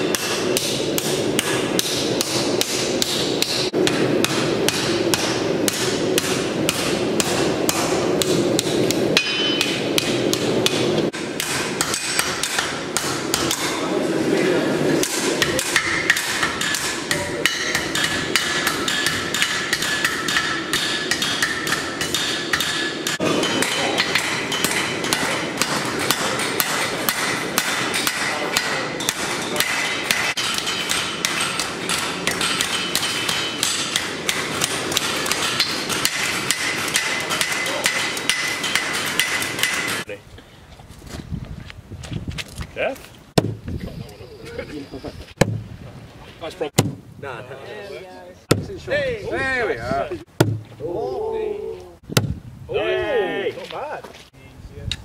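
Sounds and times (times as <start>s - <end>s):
hammer striking steel on anvil: 0.0s - 13.9s, 14.9s - 40.1s.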